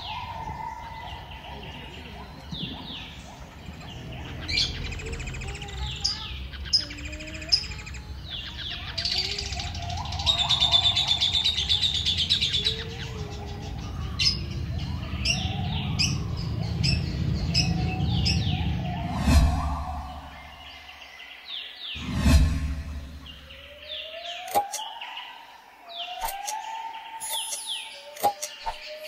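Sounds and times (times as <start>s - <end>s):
finches chirping: 0.0s - 22.0s, 22.6s - 29.0s
low rumble: 14.4s - 21.0s, 22.0s - 23.8s.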